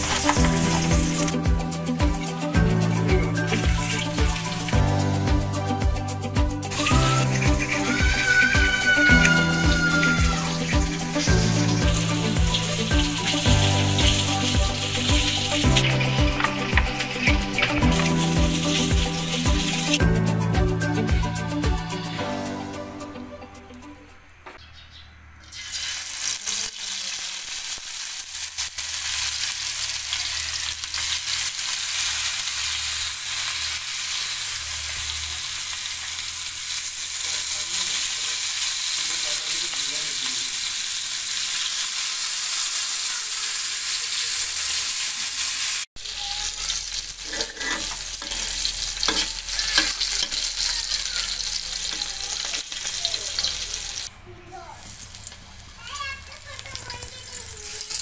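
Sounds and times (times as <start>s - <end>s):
fish frying in hot oil: 6.7s - 20.0s, 25.4s - 54.1s, 54.7s - 58.0s.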